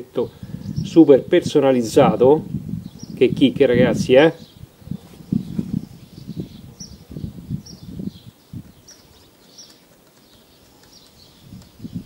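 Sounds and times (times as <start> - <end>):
small birds chirping: 0.0 - 12.0
rustling: 8.6 - 11.8.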